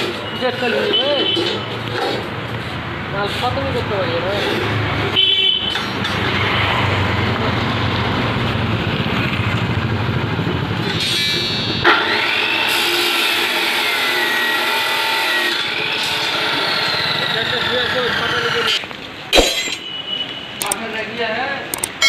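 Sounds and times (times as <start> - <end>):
cut-off saw grinding steel rebar: 10.8 - 18.9.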